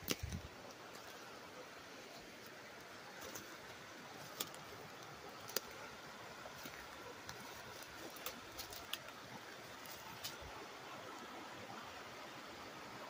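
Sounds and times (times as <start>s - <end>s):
creek rushing over rocks: 0.0s - 13.0s
footsteps snapping twigs: 6.6s - 9.1s.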